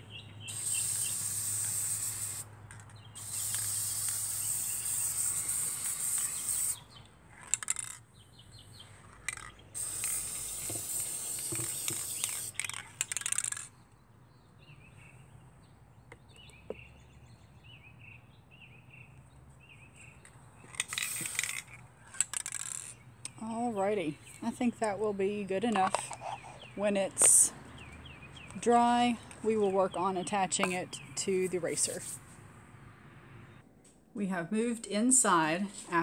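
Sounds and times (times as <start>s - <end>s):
birds chirping: 0.0s - 1.2s, 2.8s - 22.0s, 22.8s - 32.2s
spray can hissing: 0.5s - 2.5s, 3.1s - 7.0s, 9.8s - 13.4s, 20.8s - 21.6s.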